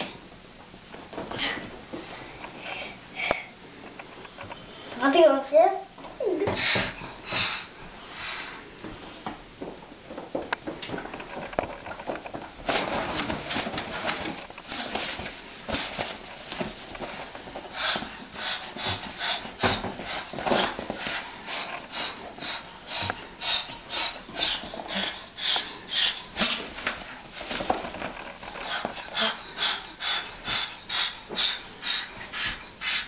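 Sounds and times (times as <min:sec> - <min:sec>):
cockatoo hissing and huffing: 0:17.6 - 0:26.8, 0:28.5 - 0:33.0.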